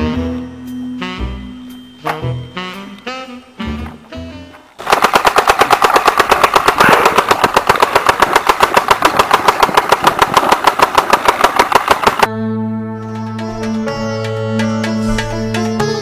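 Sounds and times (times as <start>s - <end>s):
machine-gun burst: 4.8s - 12.3s.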